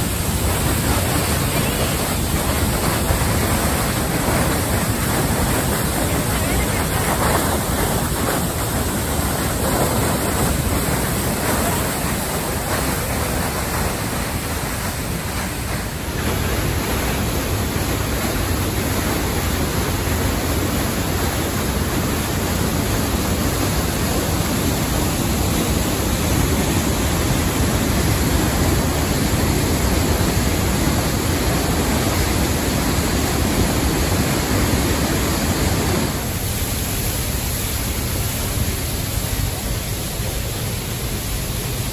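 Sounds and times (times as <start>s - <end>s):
waterfall rushing: 0.0s - 41.9s.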